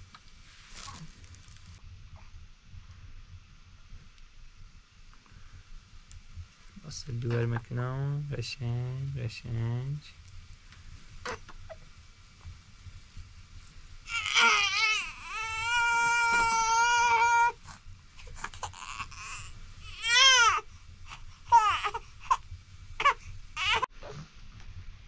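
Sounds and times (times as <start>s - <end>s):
infant crying: 14.1s - 22.4s, 23.0s - 23.9s.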